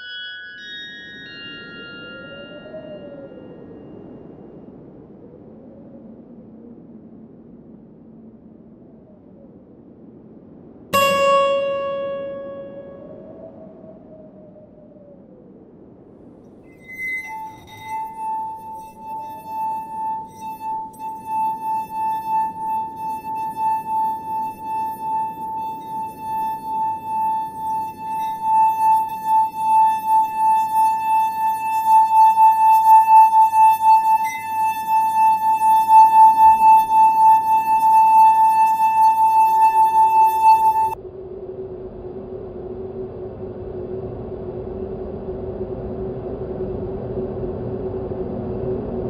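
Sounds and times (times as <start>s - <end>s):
glass-like ringing tone: 0.0s - 4.0s, 11.0s - 13.8s, 16.6s - 41.0s.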